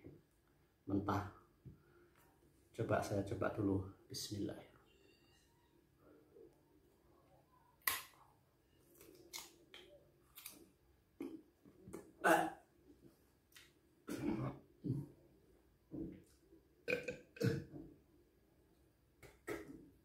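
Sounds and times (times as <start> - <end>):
man gagging and retching: 12.1 - 12.6, 16.9 - 17.7.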